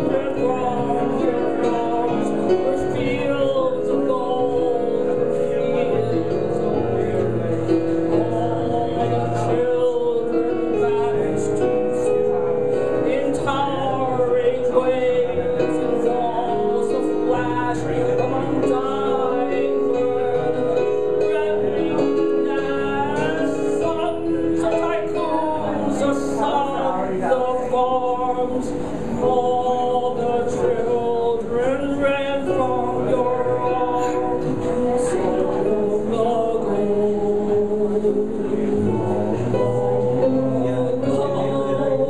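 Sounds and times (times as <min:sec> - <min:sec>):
piano accompaniment: 0:00.0 - 0:42.0
woman singing: 0:40.3 - 0:42.0.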